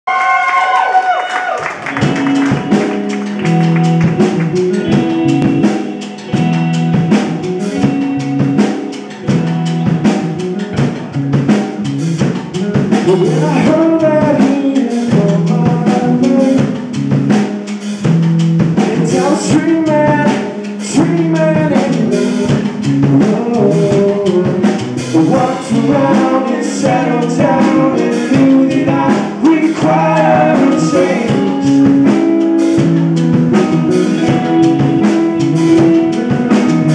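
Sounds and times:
live rock band: 0.1s - 36.9s
drum kit beat: 1.0s - 36.9s
lead vocals singing: 12.6s - 16.9s, 18.8s - 36.9s.

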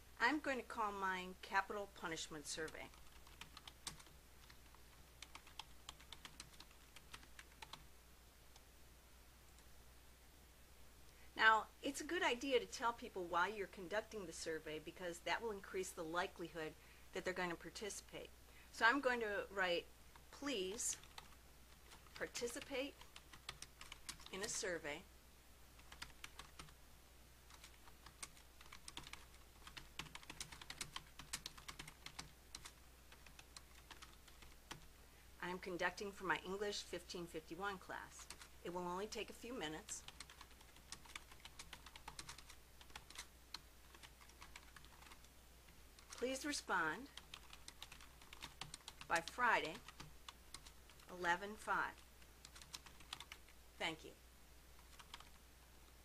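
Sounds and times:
faint keyboard typing: 2.0s - 7.9s, 20.1s - 24.6s, 25.8s - 26.8s, 27.5s - 35.0s, 38.1s - 54.0s, 54.8s - 56.0s.

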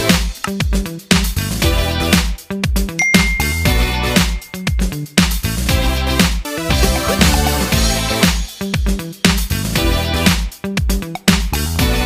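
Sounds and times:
dance music with bass line: 6.2s - 8.5s.

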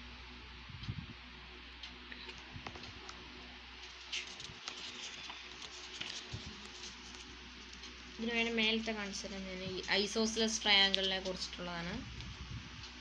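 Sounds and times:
steady low hum: 0.0s - 13.0s
paper pages rustling: 3.8s - 8.1s.

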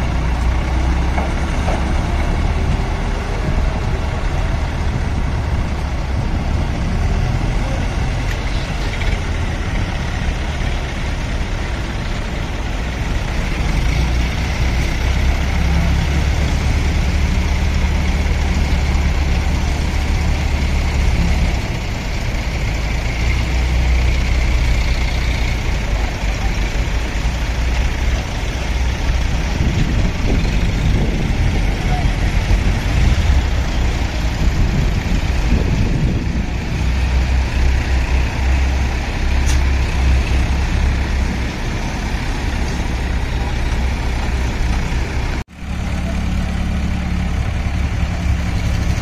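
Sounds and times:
heavy diesel engine running: 0.0s - 49.0s.

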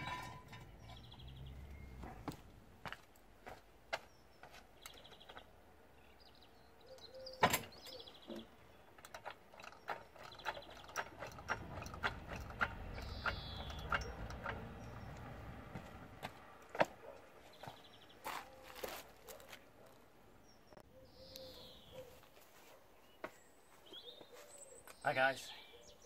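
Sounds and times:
trolley jack clicking and knocking: 9.0s - 15.8s.

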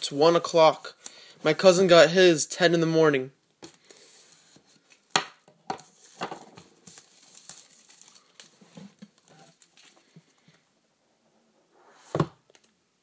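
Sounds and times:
plastic wrap crinkling: 6.0s - 10.2s.

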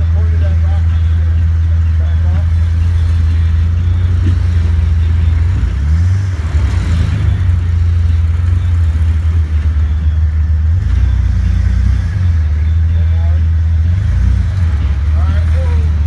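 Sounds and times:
engine running at low revs: 0.0s - 16.0s.

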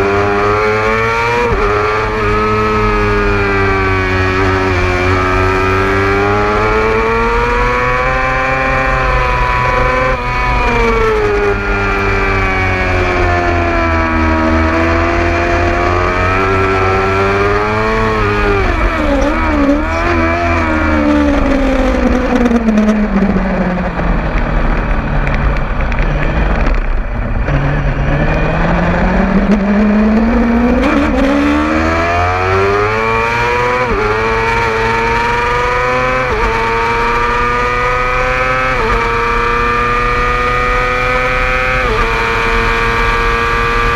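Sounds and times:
motorcycle engine revving: 0.0s - 43.9s.

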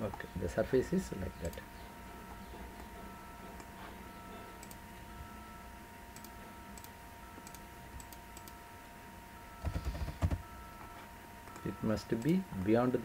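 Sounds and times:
electrical hum: 0.0s - 13.0s
computer mouse clicks: 4.6s - 4.8s, 6.2s - 8.6s.

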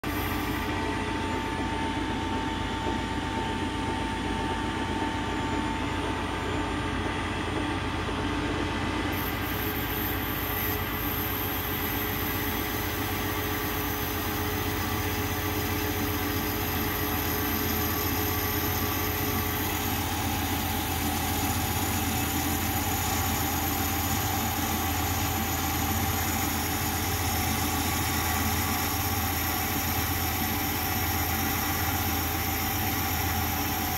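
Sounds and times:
cutting tool hiss: 0.0s - 0.8s, 9.1s - 33.9s
metal lathe hum with whine: 0.0s - 33.9s.

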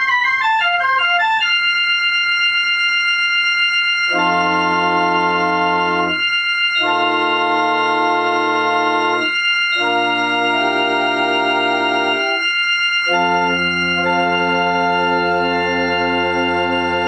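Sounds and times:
pipe organ chords: 0.0s - 17.0s
pulsing organ note: 0.0s - 17.0s
deep bass organ note: 4.0s - 17.0s.

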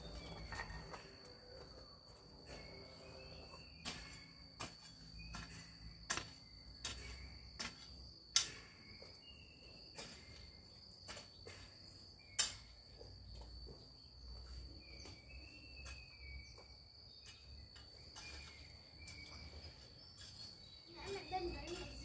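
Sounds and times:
steady high-pitched whine: 0.0s - 10.2s.

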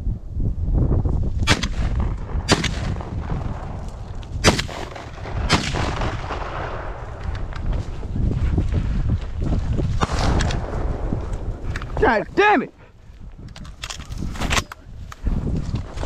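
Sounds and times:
wind rumble on microphone: 0.0s - 16.0s
shotgun shots: 1.4s - 3.8s, 4.4s - 7.0s, 10.0s - 11.0s.

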